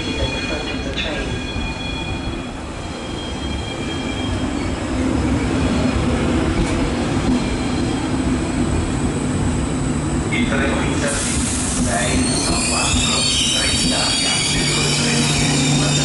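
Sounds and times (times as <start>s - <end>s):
train wheels rumbling on track: 0.0s - 16.0s
faint high wheel squeal: 12.0s - 16.0s.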